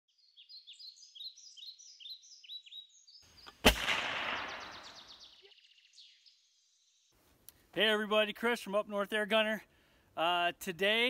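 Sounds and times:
birds chirping: 0.1s - 7.7s
echoing gunshot: 3.5s - 5.3s.

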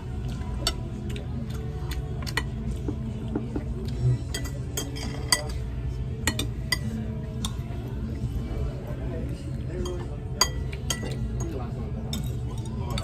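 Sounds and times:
low background hum: 0.0s - 13.0s
cutlery clinking on plates: 2.2s - 7.6s, 9.8s - 13.0s.

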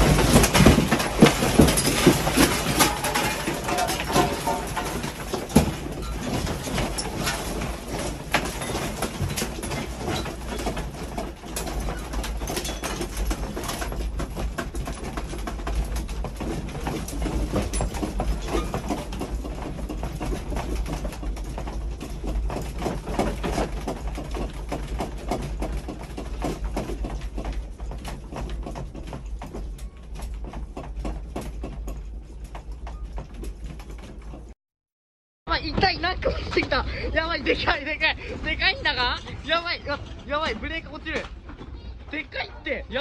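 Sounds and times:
earthquake low rumble: 0.0s - 31.4s, 35.5s - 43.0s
room contents rattling and creaking: 0.0s - 34.6s, 35.5s - 43.0s.

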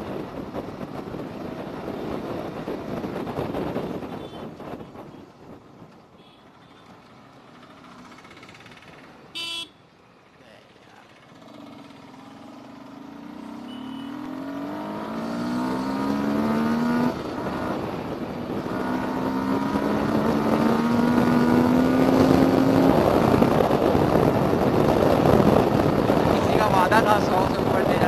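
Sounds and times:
wind noise on microphone: 0.0s - 5.9s, 14.5s - 28.0s
motorcycle engine accelerating: 11.1s - 28.0s.

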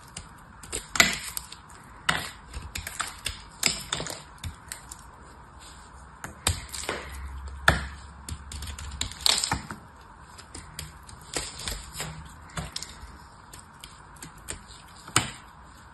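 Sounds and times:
knife cutting hard soap: 0.0s - 5.0s.

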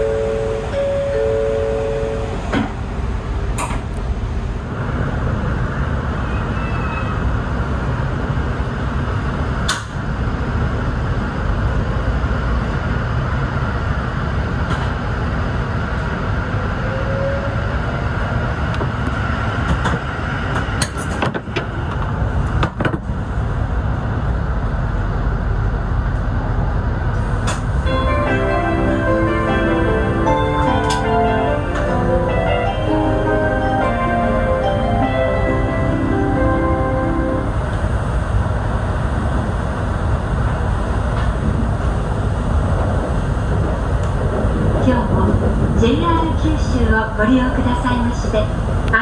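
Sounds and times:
two-tone chime: 0.0s - 2.3s
train running rumble: 0.0s - 49.0s.

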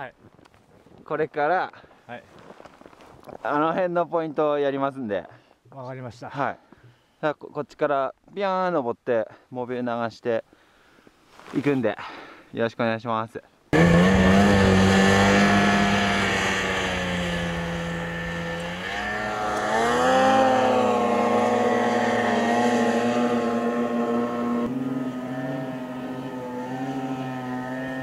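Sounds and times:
snowmobile engine running hard: 13.8s - 28.0s.

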